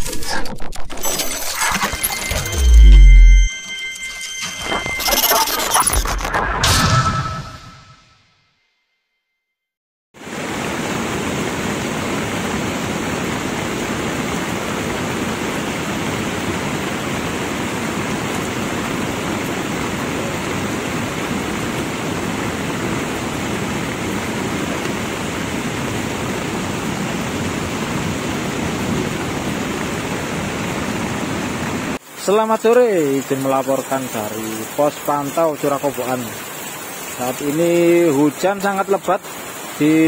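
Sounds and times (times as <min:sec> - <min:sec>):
river water rushing: 0:10.2 - 0:32.4, 0:33.0 - 0:40.0
heavy rain: 0:10.2 - 0:40.0.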